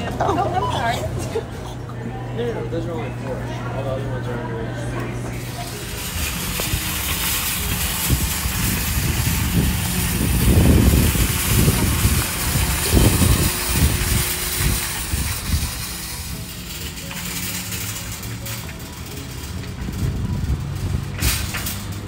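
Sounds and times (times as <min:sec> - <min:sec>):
shopping cart rattling over asphalt: 0:05.4 - 0:22.0.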